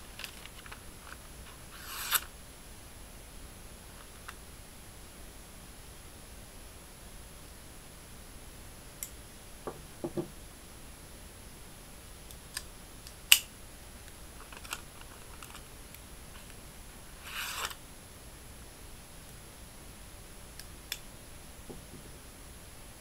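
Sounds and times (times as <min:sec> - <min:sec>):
knife scrape: 0:01.5 - 0:02.3, 0:17.2 - 0:17.8.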